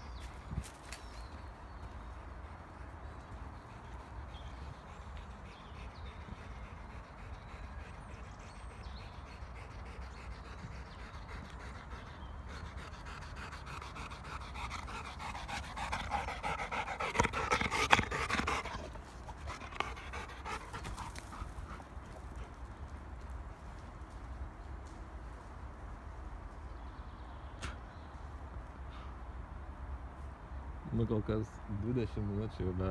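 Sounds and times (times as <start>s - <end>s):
dog panting: 1.8s - 22.6s.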